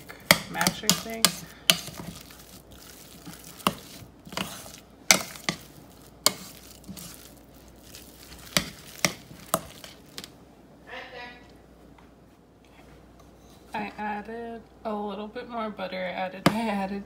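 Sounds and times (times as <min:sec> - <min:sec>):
potatoes squishing: 0:00.0 - 0:10.4.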